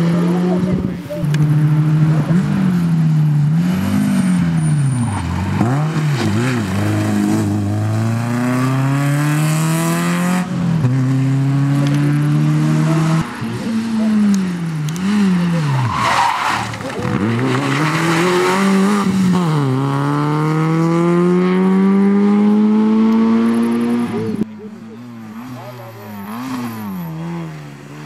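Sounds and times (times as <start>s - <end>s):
rally car engine revving: 0.0s - 28.0s.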